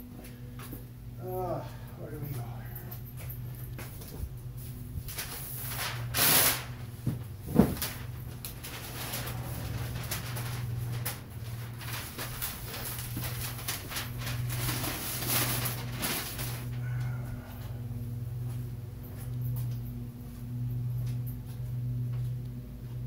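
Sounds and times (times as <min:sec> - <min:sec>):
steady low hum: 0:00.0 - 0:23.0
rustling clatter: 0:02.9 - 0:17.0.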